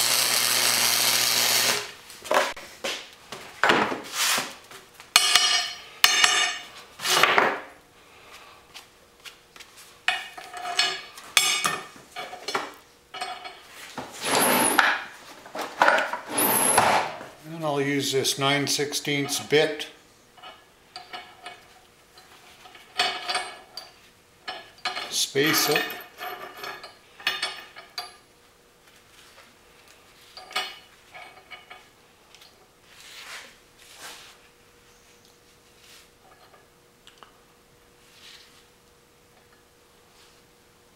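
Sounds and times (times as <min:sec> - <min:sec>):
metal parts scraping: 0:14.2 - 0:14.9, 0:16.2 - 0:17.1, 0:24.9 - 0:27.8
metal parts clinking on metal: 0:22.6 - 0:28.2.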